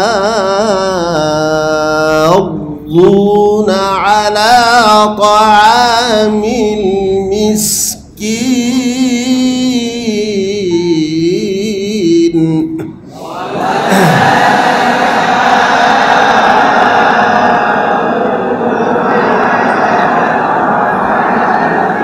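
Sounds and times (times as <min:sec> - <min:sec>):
man chanting recitation: 0:00.0 - 0:14.7.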